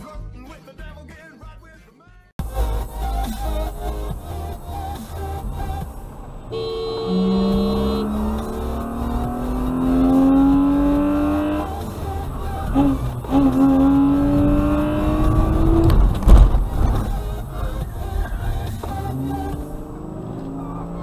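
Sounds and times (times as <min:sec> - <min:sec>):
car engine accelerating: 0:03.9 - 0:21.0
loud low thump: 0:15.2 - 0:17.3.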